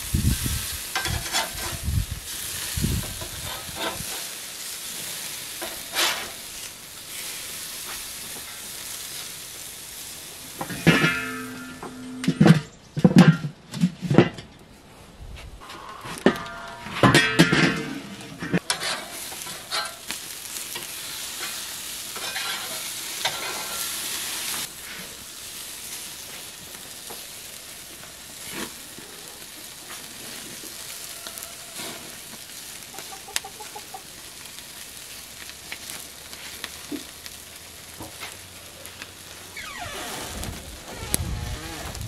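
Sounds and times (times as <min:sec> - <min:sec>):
patties sizzling on a grill: 0:00.0 - 0:11.8, 0:18.6 - 0:42.0
metal spatula scraping grate: 0:00.9 - 0:01.9, 0:03.0 - 0:04.4, 0:05.6 - 0:06.5, 0:10.6 - 0:13.4, 0:15.6 - 0:20.1, 0:20.7 - 0:25.1
chicken clucking: 0:32.9 - 0:34.1.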